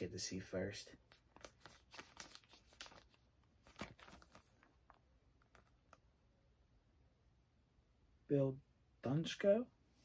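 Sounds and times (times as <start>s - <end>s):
plastic sheet rustling: 1.1s - 4.8s.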